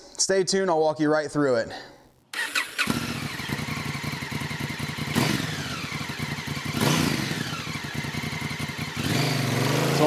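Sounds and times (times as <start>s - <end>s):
motorcycle engine running: 2.6s - 10.0s.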